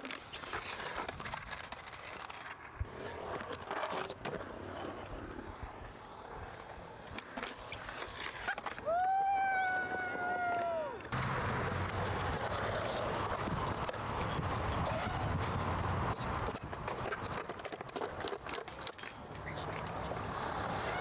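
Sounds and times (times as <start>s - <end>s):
skateboard wheels rolling on concrete: 0.0s - 21.0s
skateboard clacks: 6.3s - 21.0s.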